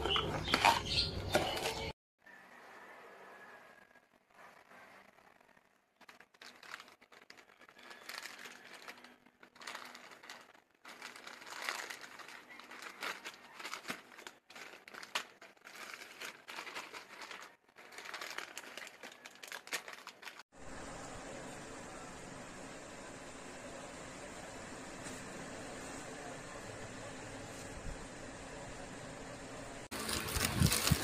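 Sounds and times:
plastic bag crinkling: 0:04.3 - 0:20.4, 0:29.9 - 0:31.0.

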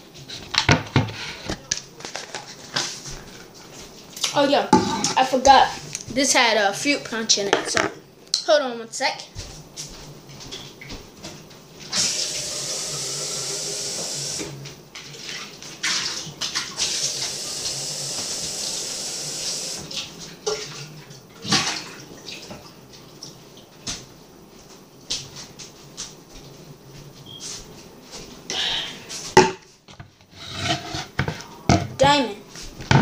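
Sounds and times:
tap water running into container: 0:11.8 - 0:20.8.

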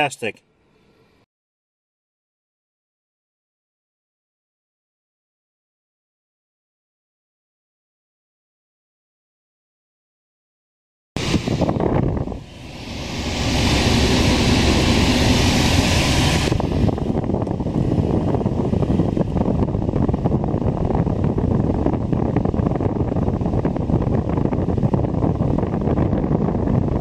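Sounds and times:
air rushing from vent: 0:11.2 - 0:27.0
wind noise on microphone: 0:11.2 - 0:27.0.

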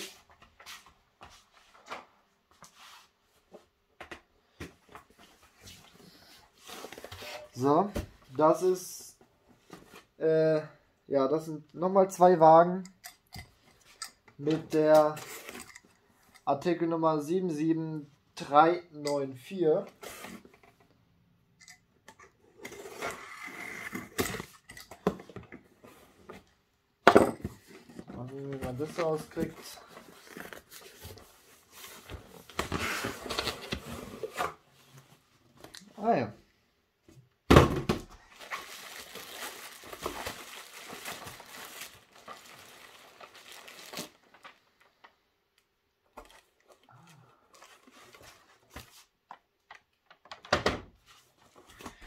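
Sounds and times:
bubble wrap crinkling: 0:38.3 - 0:44.9.

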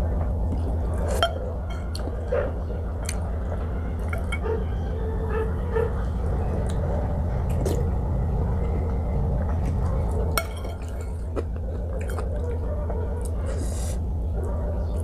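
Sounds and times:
low hum: 0:00.0 - 0:15.0
utensils clinking against bowl: 0:01.1 - 0:02.1, 0:04.0 - 0:04.6, 0:10.4 - 0:11.2.

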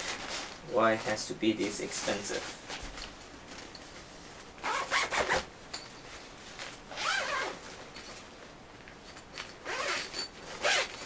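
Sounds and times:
zipper being pulled: 0:04.6 - 0:05.5, 0:06.9 - 0:07.6, 0:09.6 - 0:11.0.

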